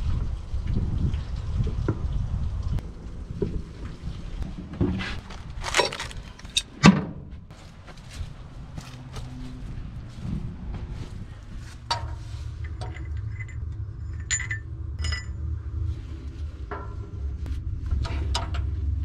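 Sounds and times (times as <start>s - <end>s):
steady low rumble: 0.0s - 19.0s
metallic clinks and taps: 11.9s - 15.4s.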